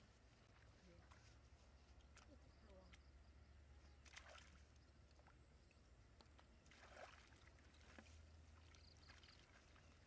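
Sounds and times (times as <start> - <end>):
hands splashing in water: 4.0 - 5.4, 6.3 - 9.9.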